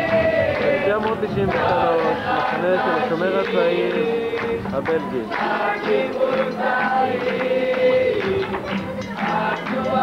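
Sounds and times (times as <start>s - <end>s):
children singing in chorus: 0.0s - 1.0s, 5.3s - 10.0s.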